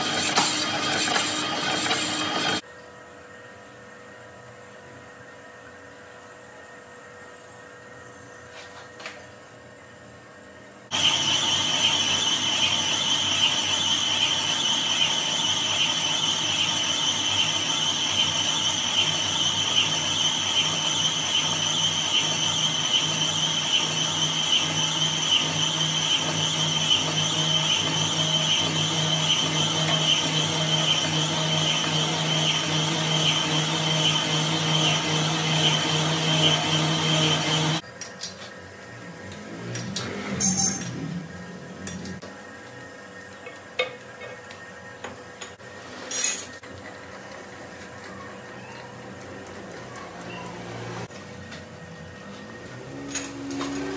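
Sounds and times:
metal lathe running: 0.0s - 2.6s, 10.9s - 37.8s
high-pitched tool squeal: 10.9s - 37.8s.

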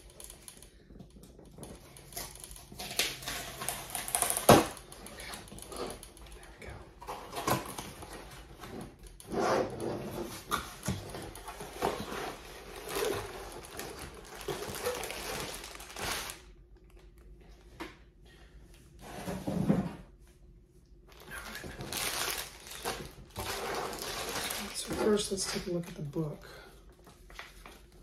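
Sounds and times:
plastic bags crinkling: 1.3s - 6.1s, 11.2s - 16.5s, 21.1s - 26.6s.

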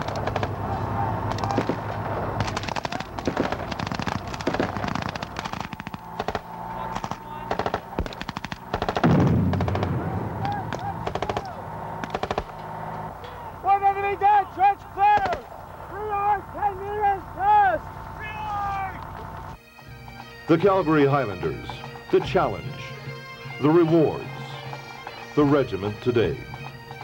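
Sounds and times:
rifle fire: 0.0s - 13.0s, 15.1s - 15.8s
deep blast: 0.0s - 13.8s.

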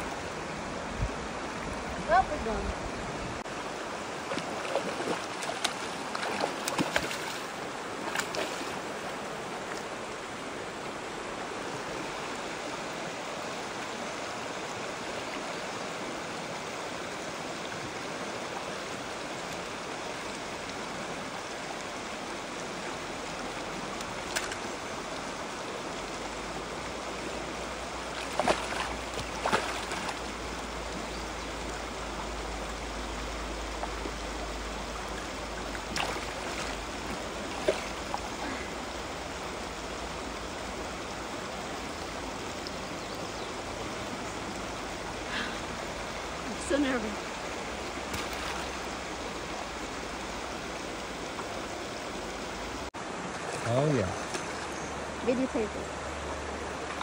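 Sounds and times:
mountain stream rushing: 0.0s - 57.0s.

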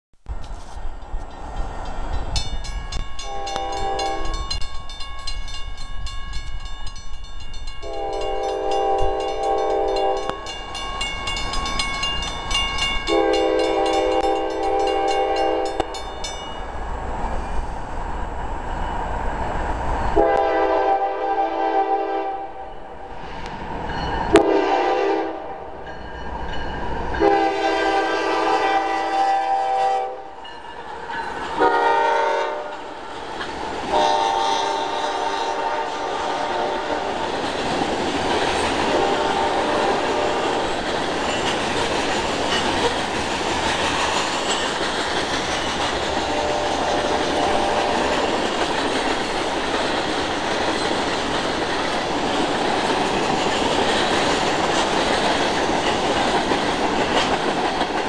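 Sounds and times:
crossing signal bell ringing: 1.0s - 16.8s, 23.8s - 24.4s, 25.8s - 27.5s, 30.3s - 31.7s, 40.2s - 43.0s
locomotive air horn blasts: 3.2s - 4.5s, 7.8s - 10.5s, 13.1s - 15.9s, 20.2s - 22.8s, 24.3s - 25.8s, 27.2s - 30.4s, 31.6s - 33.0s, 33.9s - 37.3s, 38.9s - 40.6s, 46.2s - 48.3s.

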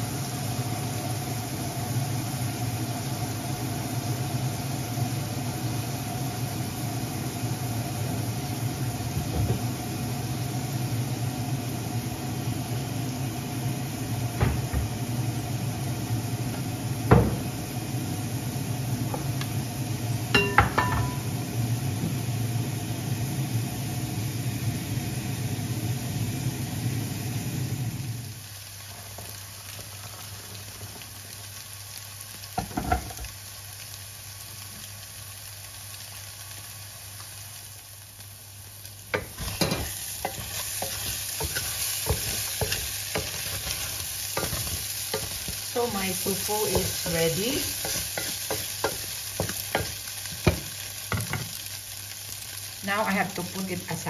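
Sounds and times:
tofu sizzling in a pot: 0.0s - 54.0s
utensils clinking against pan: 20.4s - 21.3s, 39.2s - 45.5s.

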